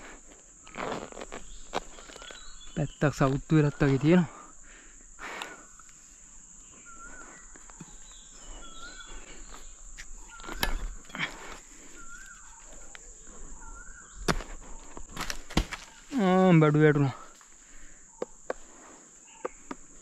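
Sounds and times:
insects droning: 0.0 - 20.0
short chirping calls: 6.6 - 14.8.

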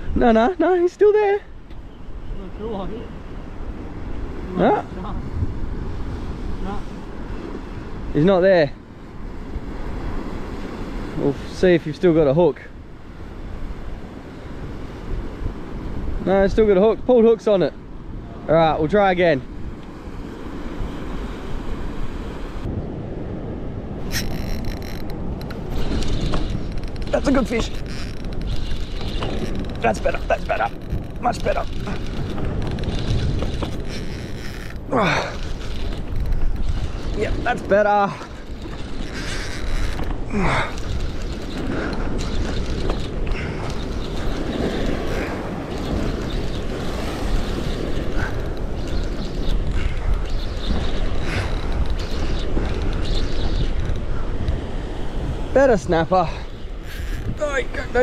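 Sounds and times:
wind on microphone: 0.0 - 11.5, 12.8 - 58.0
surf washing against rocks: 23.9 - 52.7.

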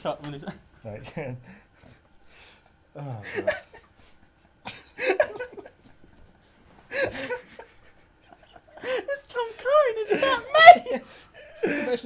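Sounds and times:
quiet breathing: 1.4 - 4.6
men laughing helplessly: 3.0 - 9.2, 9.9 - 12.0.

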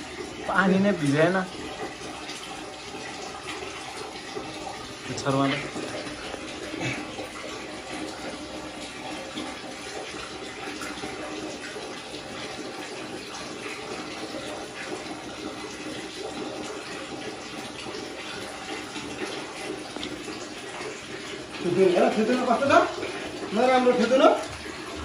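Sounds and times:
tap water splashing on tiles: 5.2 - 25.0.

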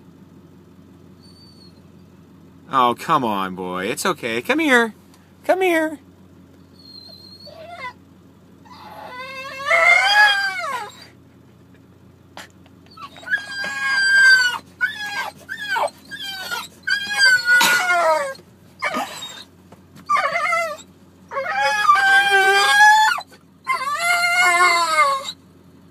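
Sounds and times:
dog howling and whining: 1.2 - 1.8, 6.7 - 8.0, 8.6 - 11.2, 12.9 - 25.4
dog yelping: 1.2 - 1.9, 6.7 - 8.0, 8.6 - 11.2, 12.8 - 25.4.

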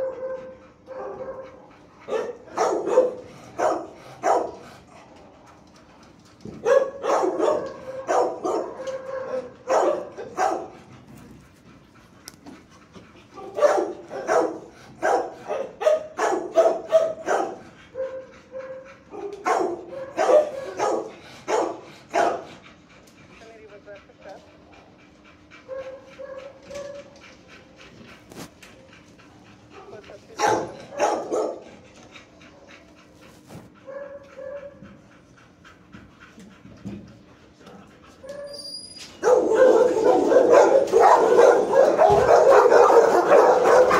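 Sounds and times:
dogs barking: 0.0 - 5.3, 6.4 - 11.1, 13.2 - 43.9
dog whining: 38.2 - 43.9.

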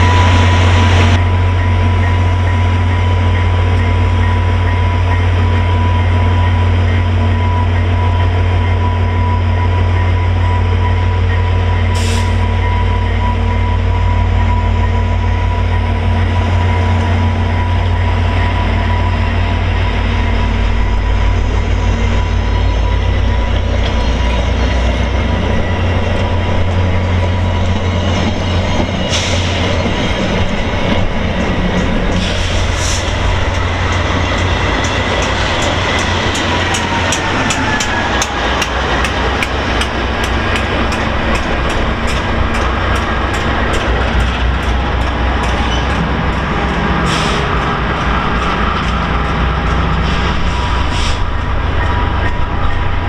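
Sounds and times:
diesel locomotive rumble: 0.0 - 53.0
train wheels running on rails: 0.0 - 53.0.

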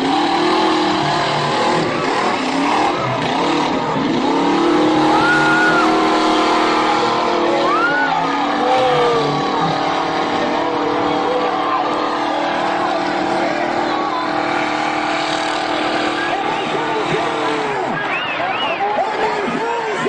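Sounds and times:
crowd noise: 0.0 - 20.0
truck engine revving hard: 0.0 - 20.0.

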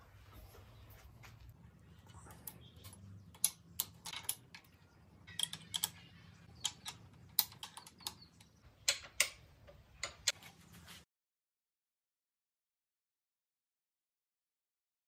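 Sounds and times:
metallic clicks and taps: 2.3 - 10.4.

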